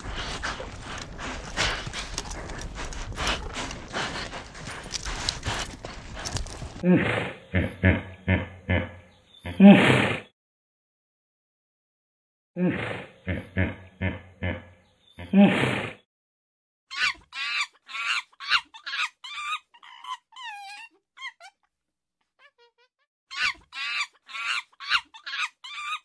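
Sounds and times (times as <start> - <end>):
animal calls: 0.0 - 6.9, 23.3 - 26.0.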